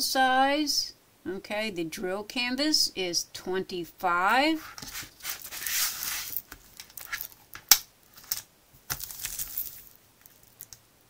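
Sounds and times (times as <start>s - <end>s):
plastic film crinkling: 4.8s - 10.8s.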